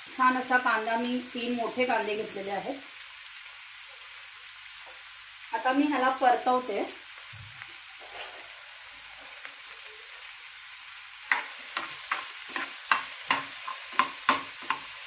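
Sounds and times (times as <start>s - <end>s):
onions sizzling in oil: 0.0s - 15.0s
spatula scraping a pan: 8.0s - 9.5s, 11.3s - 15.0s.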